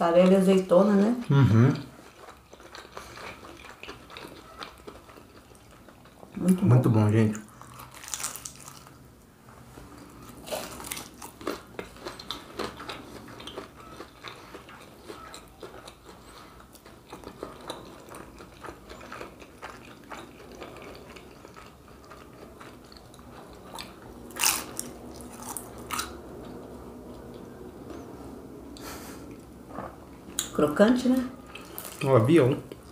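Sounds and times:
crunching fried pastry: 1.8s - 9.1s, 9.8s - 27.3s.

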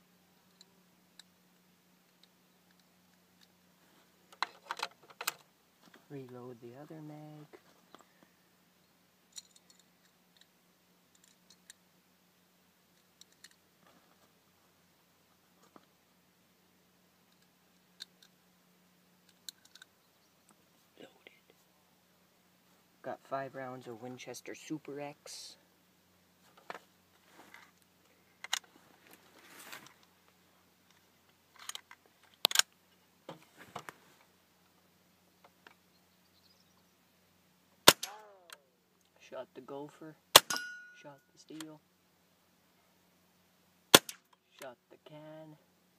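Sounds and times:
short rustles: 26.4s - 27.8s, 28.7s - 30.0s
rifle metallic clicks: 37.9s - 38.6s, 43.9s - 44.3s.

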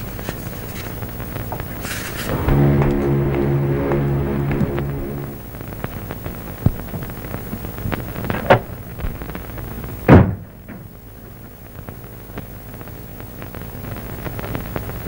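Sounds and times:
film soundtrack hiss: 0.0s - 15.0s.

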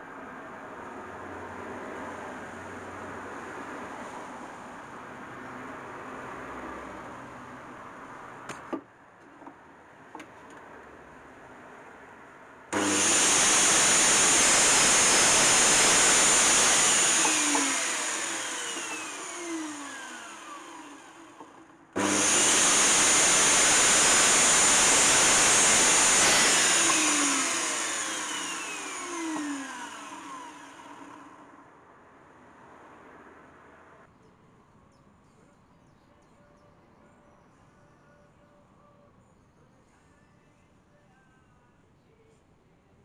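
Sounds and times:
mitre saw motor running: 12.7s - 31.4s
saw blade winding down: 12.7s - 31.4s.

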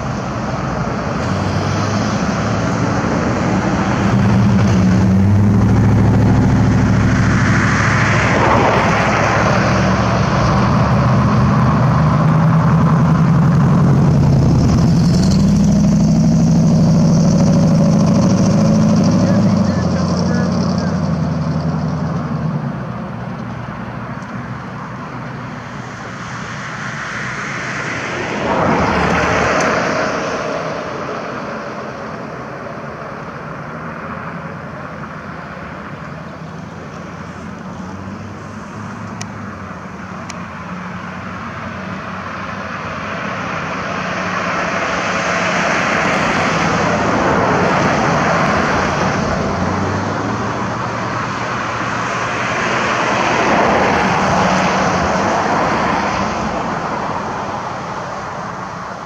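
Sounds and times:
passing motor traffic: 0.0s - 59.0s.

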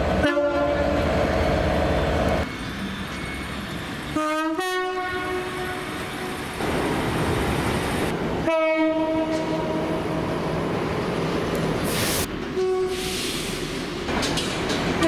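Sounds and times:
train running noise: 0.0s - 15.0s
train horn blast: 0.2s - 1.0s, 4.1s - 6.4s, 8.4s - 10.2s, 12.6s - 13.1s
two-tone train horn: 0.2s - 1.0s, 4.1s - 6.4s, 8.4s - 10.2s, 12.6s - 13.1s.

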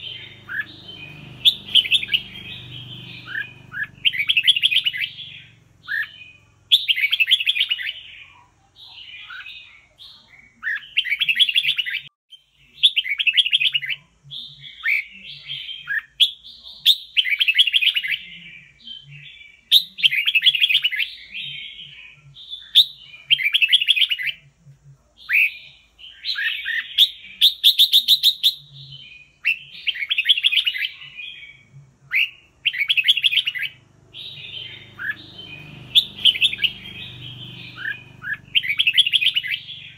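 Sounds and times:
bird chattering whistled phrases: 0.0s - 12.1s, 25.2s - 39.9s.

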